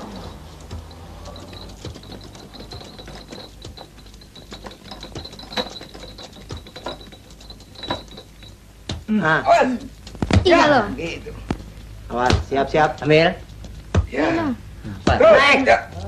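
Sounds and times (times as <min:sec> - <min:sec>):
pushcart wheels clicking and rattling: 0:00.0 - 0:08.6.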